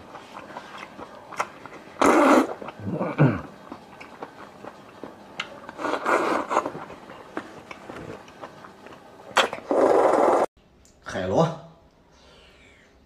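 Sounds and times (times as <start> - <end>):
slurping shellfish: 0.0 - 10.5
chewing and lip clicks: 0.1 - 1.9, 3.6 - 9.0.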